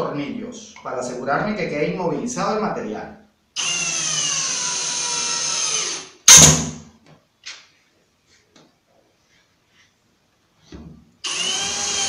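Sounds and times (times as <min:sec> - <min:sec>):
cordless drill driving screw: 0:03.6 - 0:06.1, 0:11.2 - 0:12.0.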